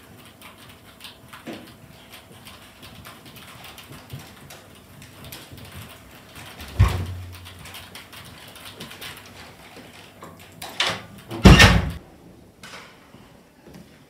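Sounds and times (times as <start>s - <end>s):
door closing with heavy thump: 6.7s - 7.4s, 11.4s - 12.0s.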